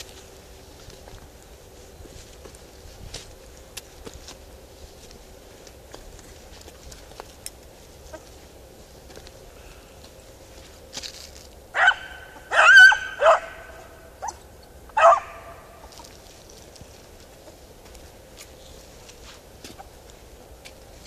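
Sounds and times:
dog barking: 11.8s - 14.4s, 15.0s - 15.7s.

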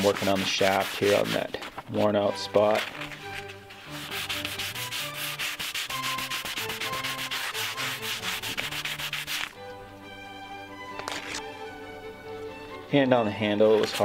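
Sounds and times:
sandpaper rubbing on wood: 0.0s - 1.7s, 3.4s - 9.6s
soft background music: 0.0s - 14.0s.

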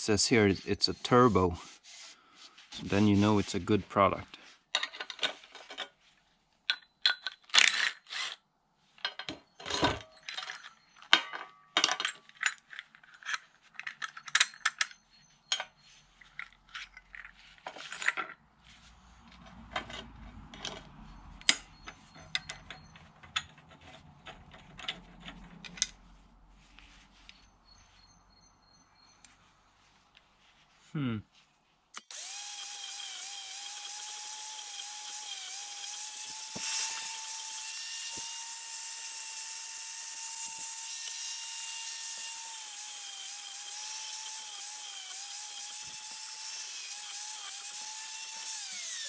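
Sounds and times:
metal tools clinking on workbench: 9.0s - 18.4s.

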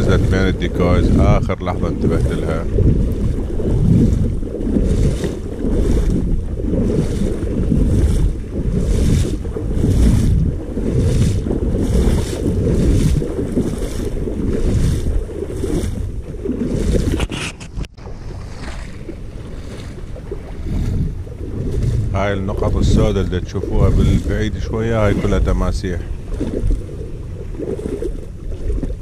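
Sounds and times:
wading splashes in water: 0.0s - 29.0s
wind rumble on microphone: 0.0s - 29.0s.

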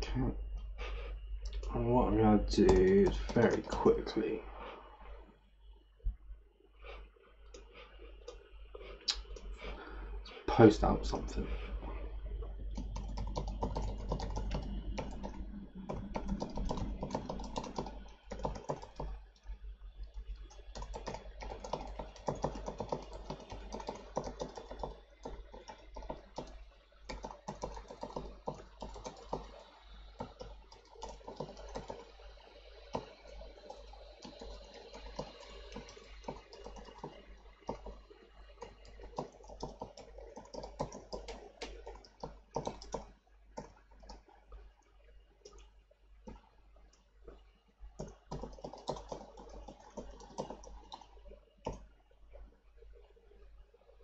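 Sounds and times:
steady low hum: 0.0s - 54.0s
typing on computer keyboard: 2.6s - 3.9s, 12.8s - 19.2s, 20.5s - 29.6s, 30.2s - 32.1s, 32.8s - 38.0s, 38.6s - 44.2s, 48.0s - 51.8s.

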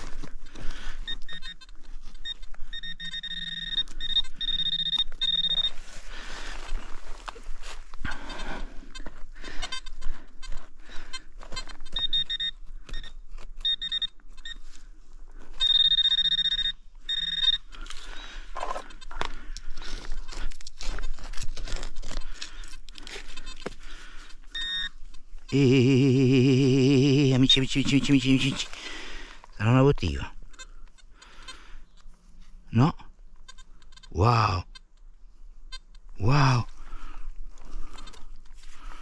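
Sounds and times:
metal detector high beeps: 1.0s - 5.8s, 11.5s - 14.7s, 15.6s - 17.7s, 24.5s - 28.7s
hands digging through soil and leaves: 19.8s - 23.5s.

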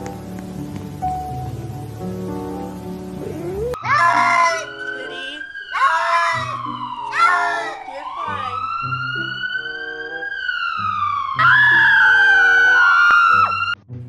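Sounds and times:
background music: 0.0s - 14.0s
siren wailing: 3.3s - 13.8s.

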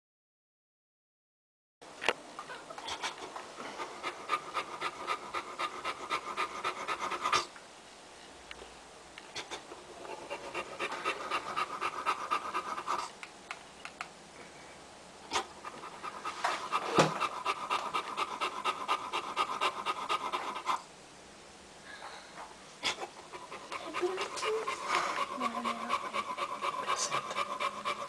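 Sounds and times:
dog panting: 2.8s - 7.5s, 9.3s - 13.2s, 15.3s - 20.8s, 22.8s - 28.0s.

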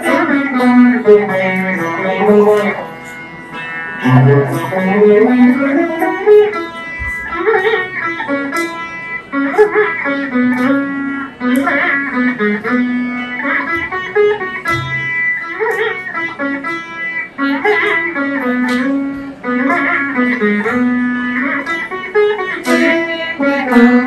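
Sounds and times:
plucked string ensemble melody: 0.0s - 24.0s.

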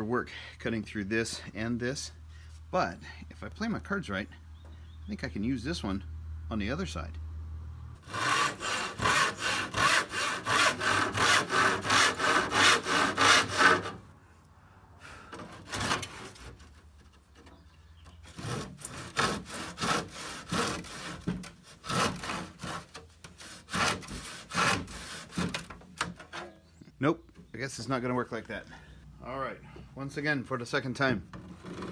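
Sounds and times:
handsaw cutting wood: 8.0s - 14.1s, 15.4s - 16.8s, 18.3s - 25.8s.

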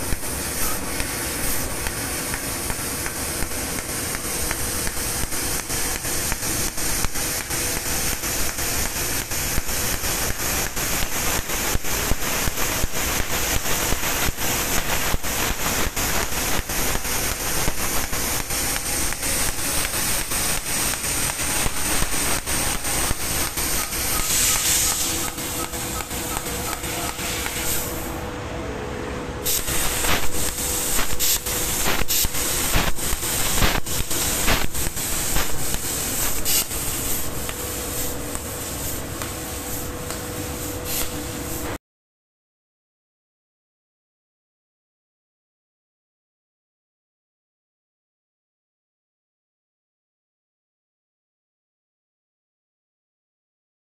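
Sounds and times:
laser cutter gas hiss: 0.0s - 28.2s, 29.4s - 41.8s
machine hum: 12.8s - 41.8s.

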